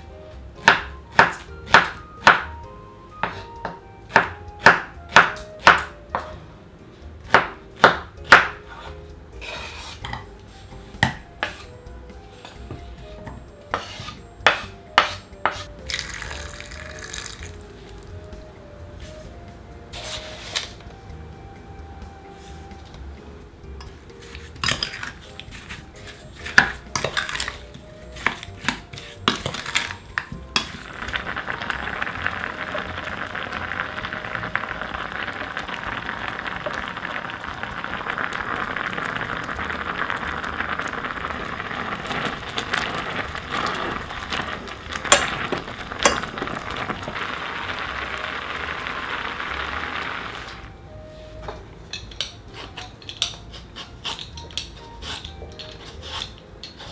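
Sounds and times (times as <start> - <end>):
spoon scraping and knocking pot: 13.7 - 15.7, 23.8 - 31.9
wooden spoon stirring in saucepan: 13.7 - 15.7, 24.2 - 50.4
syrup boiling with bubbling hiss: 15.5 - 18.0, 24.2 - 50.7.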